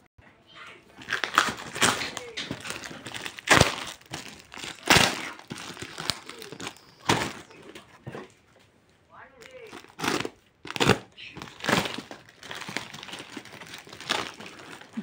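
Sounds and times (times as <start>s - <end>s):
tape crinkling and tearing: 0.9s - 7.9s, 9.4s - 15.0s
knife cutting tape and cardboard: 1.2s - 2.8s, 9.9s - 11.0s.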